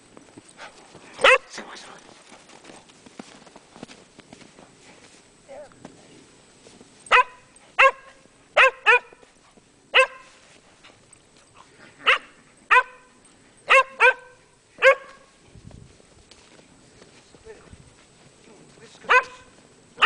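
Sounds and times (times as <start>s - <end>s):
dog barking excitedly: 1.2s - 1.6s, 7.1s - 9.2s, 9.9s - 10.3s, 12.0s - 13.1s, 13.7s - 15.2s, 19.1s - 19.5s.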